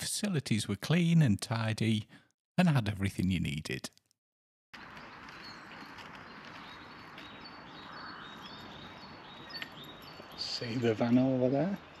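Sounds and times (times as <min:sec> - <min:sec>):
small birds chirping: 0:04.8 - 0:12.0.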